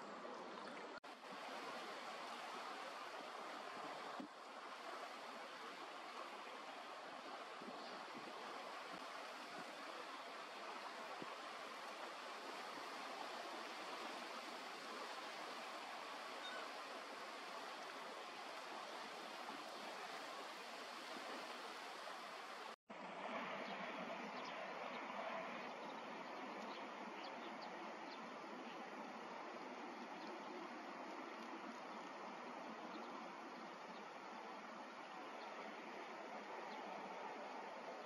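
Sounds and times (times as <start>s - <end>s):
wind: 0.0s - 38.0s.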